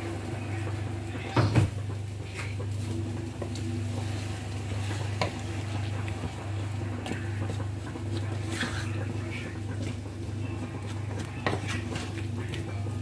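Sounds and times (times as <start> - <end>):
steady low hum: 0.0 - 13.0
spoon stirring stew: 3.4 - 13.0.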